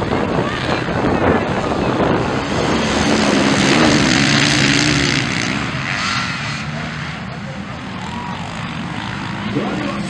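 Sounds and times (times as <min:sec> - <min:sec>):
dirt bike engines revving: 0:00.0 - 0:10.0.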